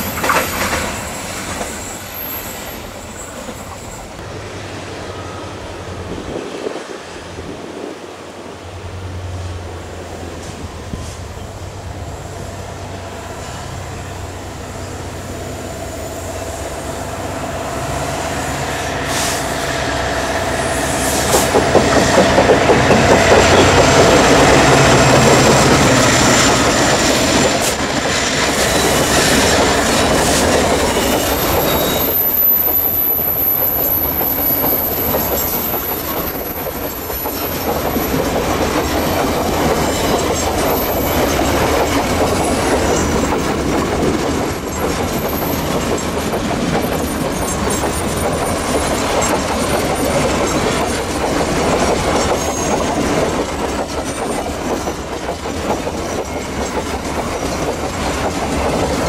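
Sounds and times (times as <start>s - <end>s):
wagons clacking over rail joints: 0.0s - 2.0s, 21.2s - 59.0s
high wheel squeal: 0.0s - 4.2s, 17.7s - 38.3s, 52.0s - 53.3s
diesel locomotive engines: 0.0s - 59.0s.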